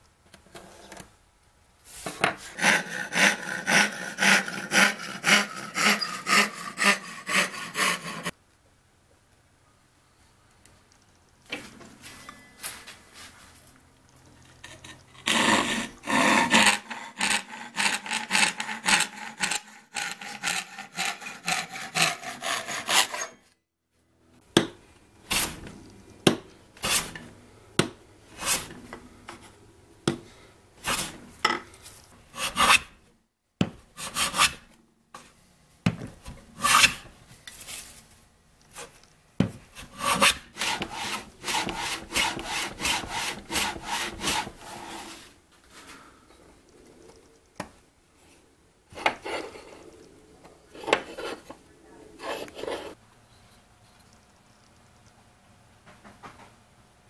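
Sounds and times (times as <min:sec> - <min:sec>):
hand saw rasping through wood: 0:02.4 - 0:08.3, 0:15.2 - 0:23.4, 0:32.4 - 0:32.9, 0:39.8 - 0:45.2
hand tool strokes on wood: 0:02.4 - 0:08.3, 0:14.6 - 0:23.4, 0:39.8 - 0:45.4.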